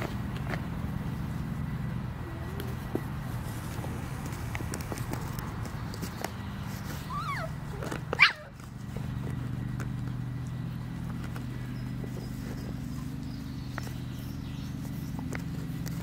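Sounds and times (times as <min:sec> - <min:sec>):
steady low hum: 0:00.0 - 0:16.0
dog whining: 0:07.0 - 0:08.6
dog yelping: 0:07.0 - 0:08.7.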